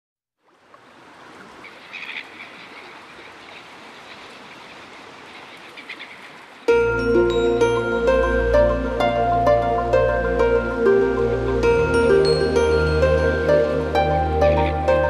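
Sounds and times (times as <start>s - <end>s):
music with plucked notes: 6.7s - 15.0s.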